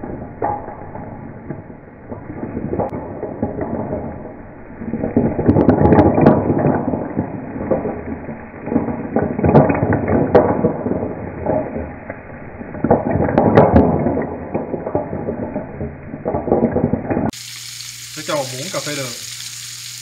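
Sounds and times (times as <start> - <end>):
flames burning: 0.0 - 20.0
snail shells rattling in a pan: 17.3 - 20.0.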